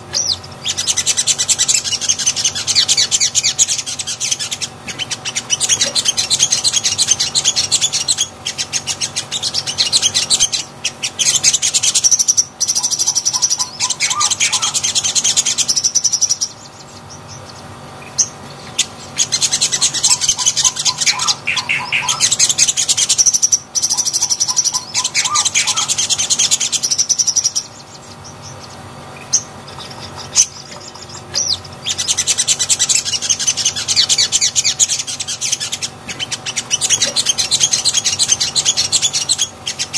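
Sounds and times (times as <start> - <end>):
bird chattering song: 0.0 - 39.9.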